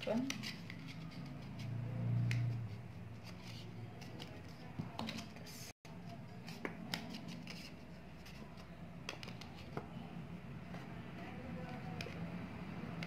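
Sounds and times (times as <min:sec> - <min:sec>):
cardstock clicks and taps: 0:09.0 - 0:09.9.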